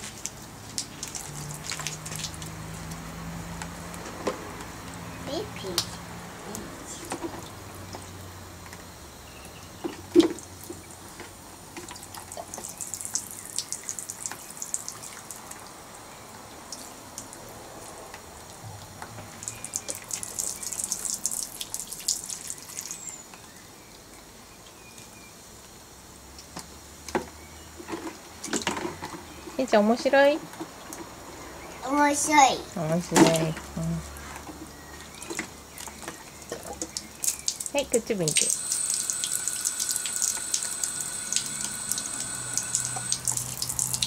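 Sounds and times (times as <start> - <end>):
water splashing in plastic bucket: 0.0 - 4.4.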